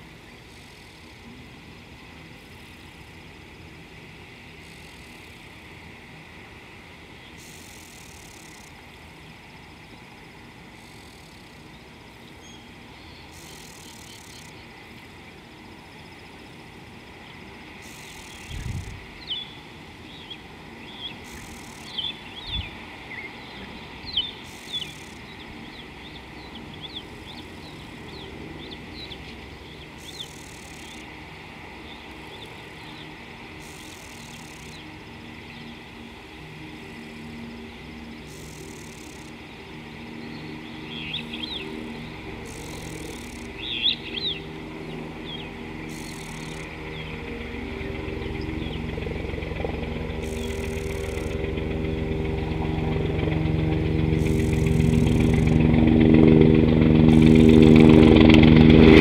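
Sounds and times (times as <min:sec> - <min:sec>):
birds chirping and twittering: 0:11.6 - 0:15.8, 0:17.1 - 0:31.1, 0:31.8 - 0:36.7, 0:37.6 - 0:58.3
low engine hum: 0:14.5 - 0:59.0.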